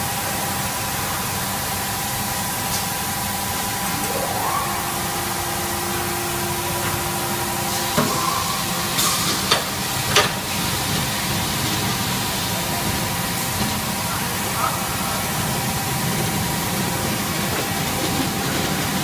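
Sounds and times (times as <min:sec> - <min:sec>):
factory machinery hiss and hum: 0:00.0 - 0:19.0
low tone: 0:03.7 - 0:08.8.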